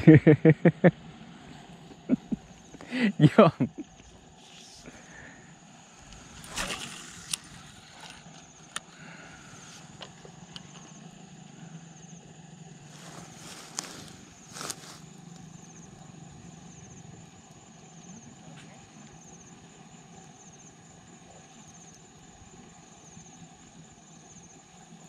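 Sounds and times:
faint low hum: 0:00.0 - 0:25.0
rustling of handling: 0:13.0 - 0:15.0.

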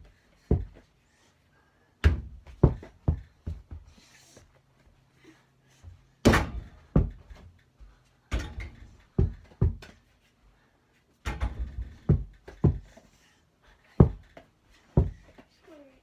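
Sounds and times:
ball bouncing on floor: 0:02.0 - 0:03.7.

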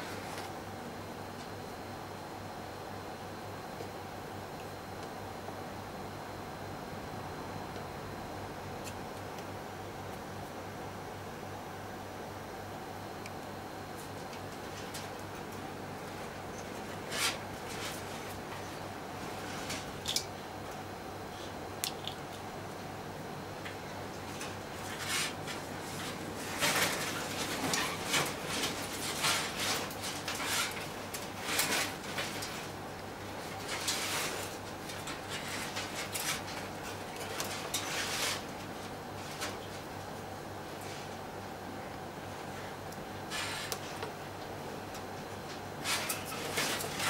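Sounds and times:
low electrical hum: 0:00.0 - 0:47.0.

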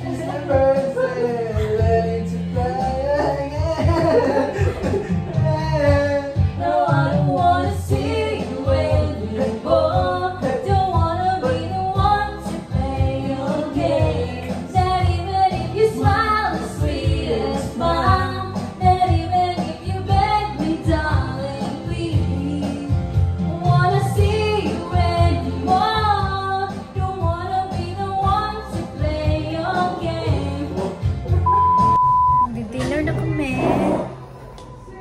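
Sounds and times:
woman singing: 0:06.5 - 0:31.0.

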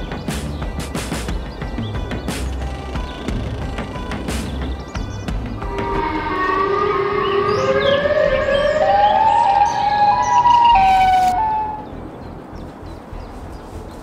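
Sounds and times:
wailing siren rising in pitch: 0:05.6 - 0:12.0.

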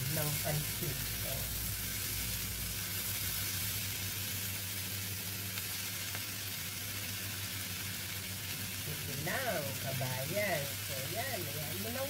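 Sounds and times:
vegetables sizzling in a wok: 0:00.0 - 0:12.0.

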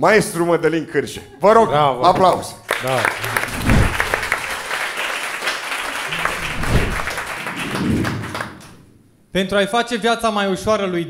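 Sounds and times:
audience applauding: 0:02.6 - 0:08.8.

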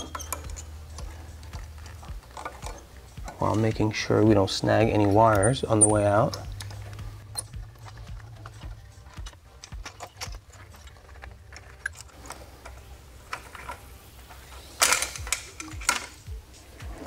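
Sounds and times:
plastic and metal clicks and rattles: 0:05.0 - 0:13.8, 0:14.4 - 0:16.3.

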